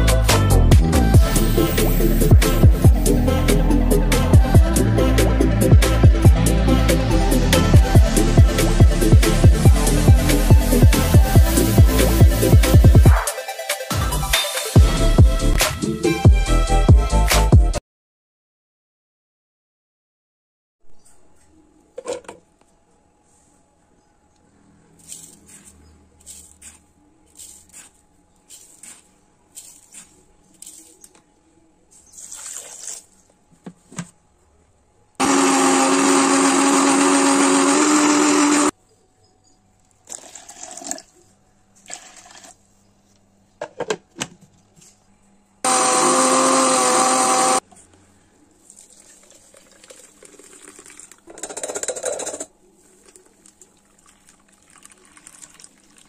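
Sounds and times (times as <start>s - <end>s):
electric mixer-grinder blending: 35.2s - 38.7s, 45.6s - 47.6s.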